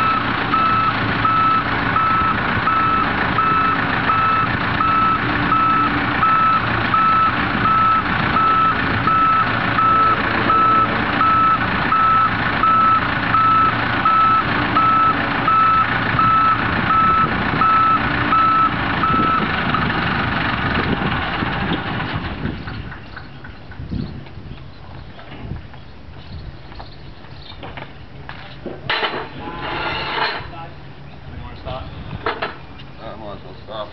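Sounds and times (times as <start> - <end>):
warning beeper: 0.0 - 19.5
lift engine running: 0.0 - 23.6.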